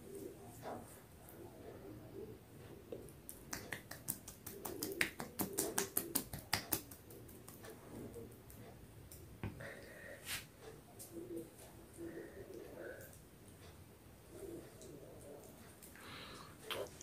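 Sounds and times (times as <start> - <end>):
hands smacking face: 3.2 - 7.8.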